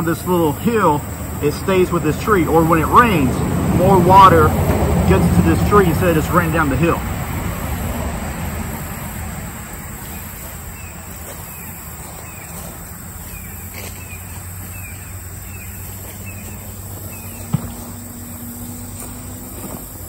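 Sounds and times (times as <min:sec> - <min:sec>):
high insect drone: 0:00.0 - 0:20.0
vehicle passing: 0:00.0 - 0:20.0
bird chirping: 0:10.0 - 0:19.8.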